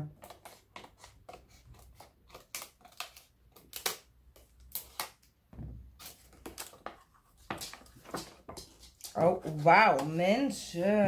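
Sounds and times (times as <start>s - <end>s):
clicks and rustles of packaging: 6.0s - 10.2s.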